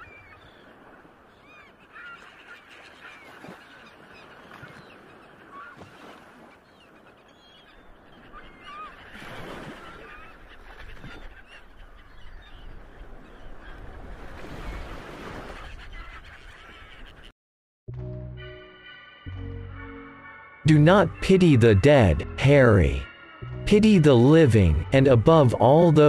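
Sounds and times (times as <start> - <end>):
birds squawking: 0.0 - 5.8, 6.4 - 14.0, 15.4 - 17.3.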